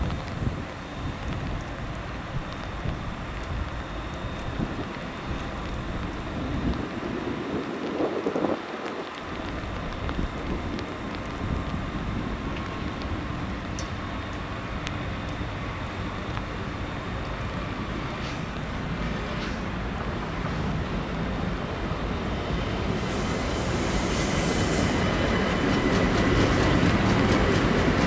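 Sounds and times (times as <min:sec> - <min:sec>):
train running noise: 0:00.0 - 0:28.0
burst of hiss: 0:18.2 - 0:18.8, 0:19.4 - 0:19.7, 0:23.0 - 0:25.1.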